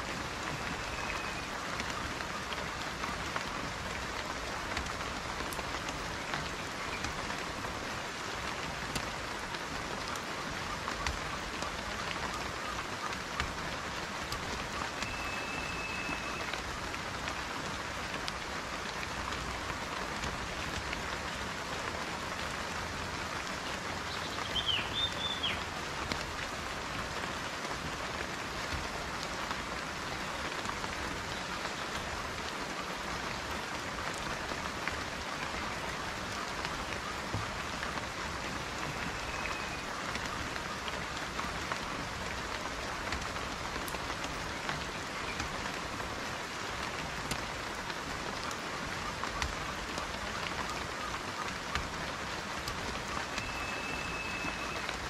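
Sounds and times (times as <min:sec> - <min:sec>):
steady rain falling: 0:00.0 - 0:55.0
bird chirping: 0:24.1 - 0:25.6.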